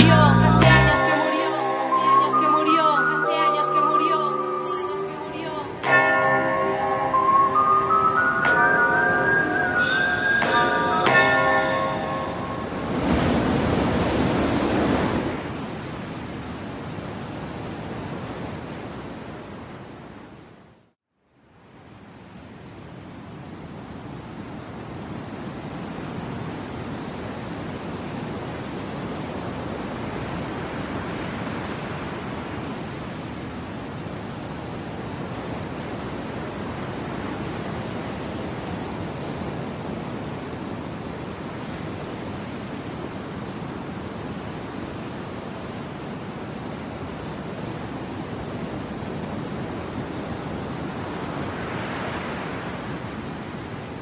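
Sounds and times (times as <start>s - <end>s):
sea waves washing: 1.0s - 15.6s.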